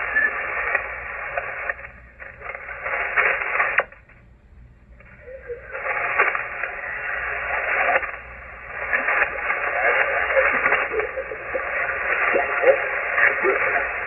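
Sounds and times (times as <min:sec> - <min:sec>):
radio static: 0:00.0 - 0:04.1, 0:04.9 - 0:14.0
garbled radio voice: 0:08.8 - 0:14.0.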